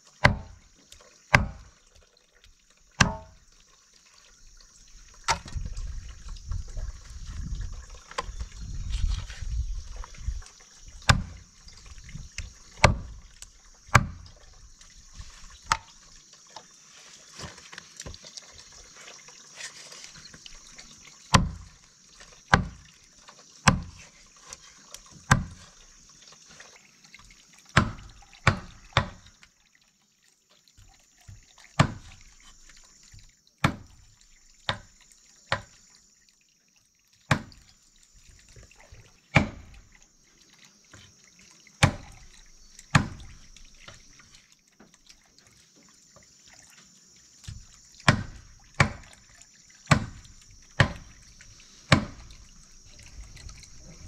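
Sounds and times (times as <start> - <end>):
water running into plastic basin: 0.0 - 54.0
knife chopping on wooden board: 0.2 - 0.6, 1.3 - 1.6, 3.0 - 3.3.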